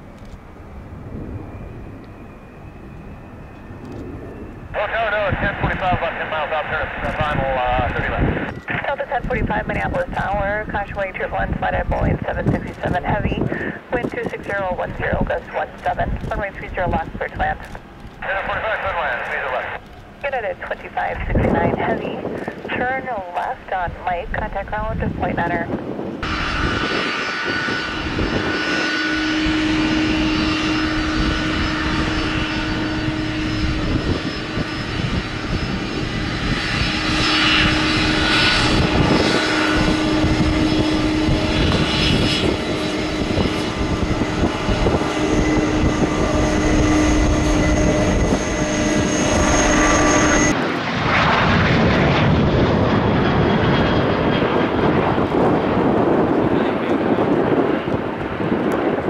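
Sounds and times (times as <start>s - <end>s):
jet engines whining: 0.0s - 59.0s
jet rush: 0.0s - 59.0s.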